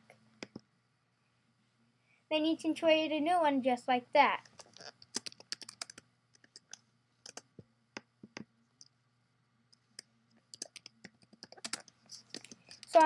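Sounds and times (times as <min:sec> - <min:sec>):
computer mouse and keyboard clicks: 0:04.4 - 0:07.6, 0:10.0 - 0:13.0.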